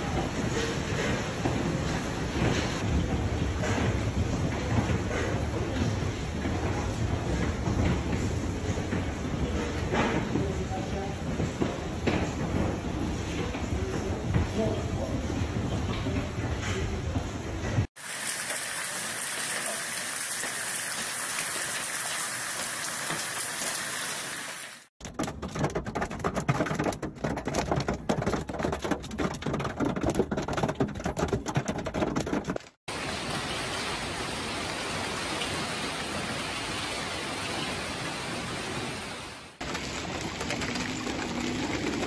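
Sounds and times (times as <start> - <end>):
rain hissing: 18.0 - 24.9, 32.9 - 41.3
hailstones clattering on hard surfaces: 39.6 - 42.0.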